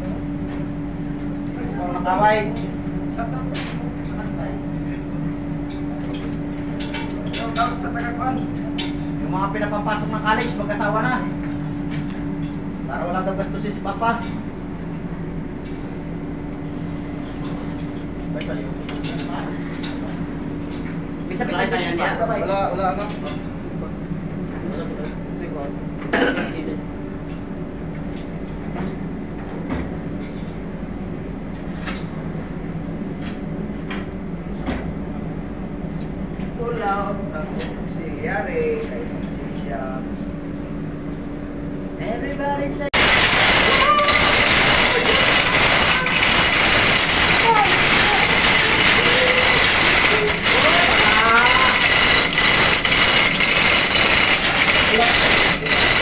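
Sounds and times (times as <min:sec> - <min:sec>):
engine-room machinery whine: 0:00.0 - 0:56.0
machinery droning: 0:42.9 - 0:56.0.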